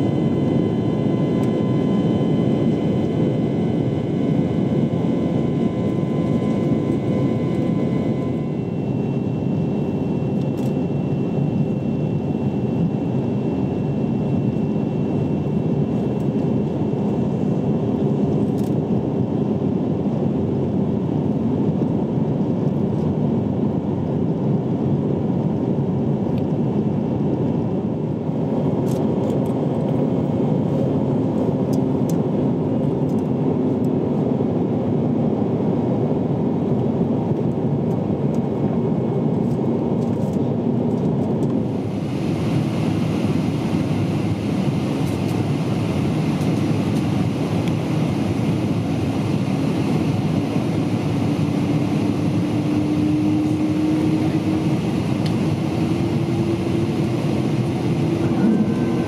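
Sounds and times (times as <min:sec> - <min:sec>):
airliner cabin engine noise: 0:00.0 - 0:59.0
hum rising in pitch: 0:50.6 - 0:59.0.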